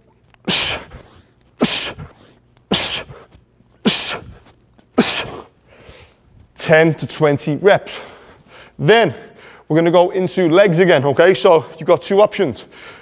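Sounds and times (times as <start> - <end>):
sharp forceful exhalations: 0.5 - 6.2.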